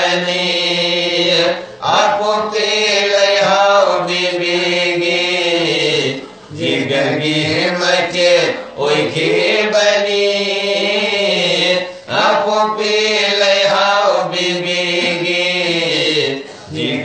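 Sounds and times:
men singing in chanting style: 0:00.0 - 0:17.0.

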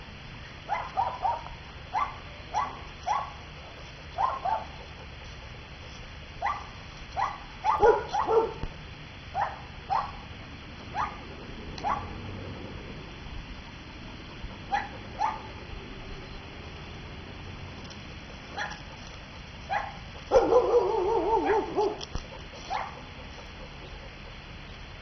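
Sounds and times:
dog yipping: 0:00.7 - 0:03.4, 0:04.2 - 0:04.8, 0:06.4 - 0:08.6, 0:09.4 - 0:10.2, 0:10.9 - 0:11.2, 0:11.8 - 0:12.2, 0:14.7 - 0:15.6, 0:18.5 - 0:18.9, 0:19.7 - 0:24.0
dog whining: 0:19.7 - 0:24.2.

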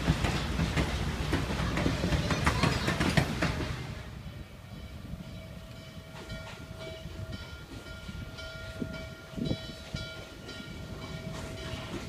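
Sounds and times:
steam locomotive rumble: 0:00.0 - 0:12.0
locomotive bell ringing: 0:04.2 - 0:12.0.

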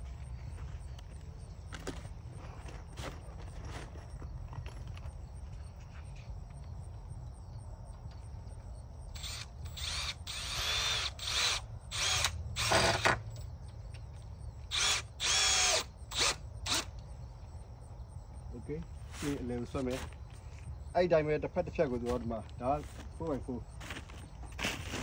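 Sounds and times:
cordless drill driving screws: 0:09.2 - 0:13.2, 0:14.7 - 0:16.9.

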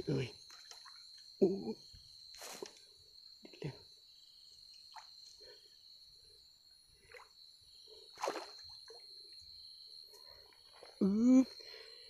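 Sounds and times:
high insect trill: 0:00.0 - 0:12.0
fish splashing at water surface: 0:08.2 - 0:08.7.

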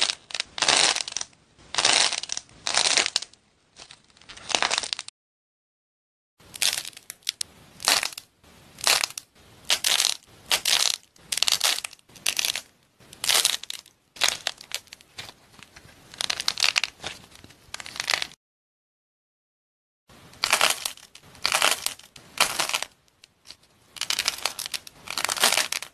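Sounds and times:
brittle objects crunching: 0:00.0 - 0:05.1, 0:08.8 - 0:18.4, 0:20.4 - 0:25.9.

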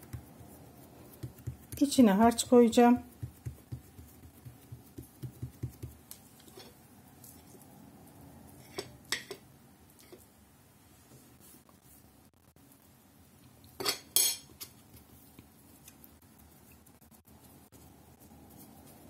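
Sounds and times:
fingers patting dough on board: 0:00.0 - 0:06.2.

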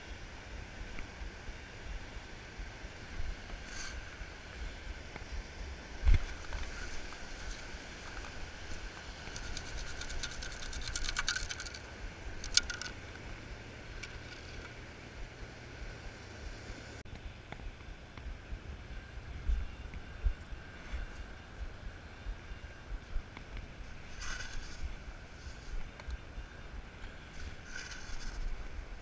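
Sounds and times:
sand and shells rattling in metal scoop: 0:09.2 - 0:11.8, 0:12.4 - 0:13.0.

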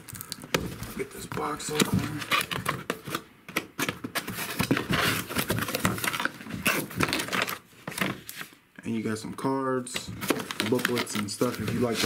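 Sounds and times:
cardboard scraping and rustling: 0:00.6 - 0:03.2, 0:03.8 - 0:08.5, 0:10.0 - 0:12.0.

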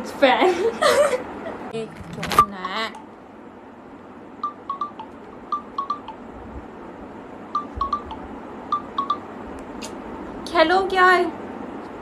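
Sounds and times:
phone ringtone beeps: 0:04.4 - 0:06.2, 0:07.5 - 0:09.3.

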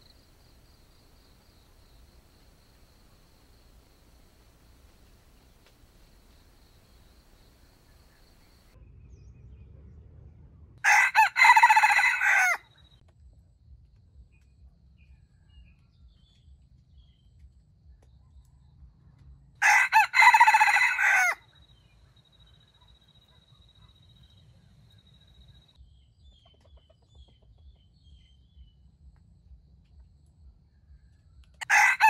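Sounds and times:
rooster crowing: 0:00.0 - 0:08.8, 0:10.8 - 0:12.8, 0:19.6 - 0:21.4, 0:31.6 - 0:32.0.

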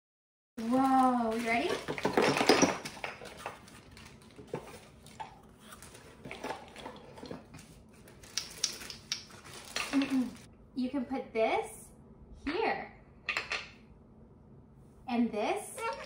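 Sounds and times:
wooden toy pieces clattering: 0:00.6 - 0:04.2, 0:08.2 - 0:10.4, 0:15.8 - 0:16.0
plastic bag crinkling: 0:00.6 - 0:10.5.

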